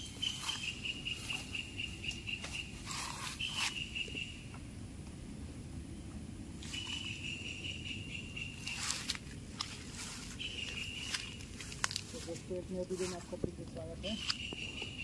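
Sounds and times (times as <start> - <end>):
low background hiss: 3.7 - 15.0.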